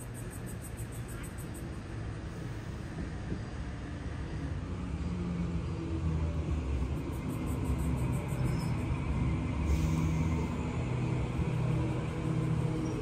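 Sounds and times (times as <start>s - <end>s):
electric train rumbling and humming: 0.0s - 13.0s
train brake hiss: 2.2s - 3.2s, 9.5s - 10.7s.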